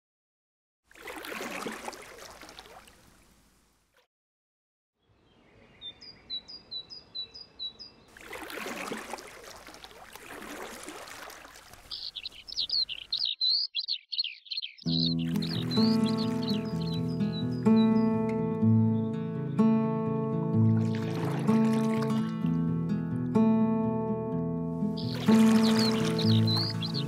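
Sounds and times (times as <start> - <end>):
paddle strokes through water: 0.9 - 3.3, 8.1 - 13.0, 15.1 - 17.6, 20.7 - 22.2, 25.0 - 27.0
bird warbling song: 5.0 - 8.1, 11.8 - 19.3, 24.8 - 27.0
songbirds chirping: 5.0 - 8.2, 11.4 - 22.2, 24.8 - 27.0.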